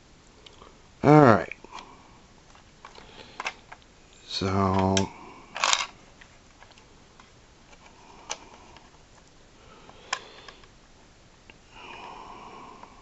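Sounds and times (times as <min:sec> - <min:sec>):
plastic toy clicks: 0:05.6 - 0:05.9.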